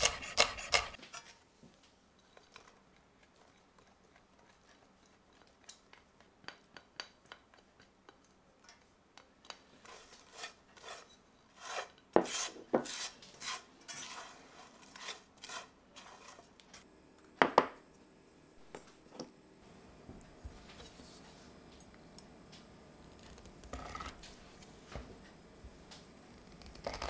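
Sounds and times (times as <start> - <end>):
spatula scraping a metal pan: 0.0 - 1.4, 9.8 - 16.8.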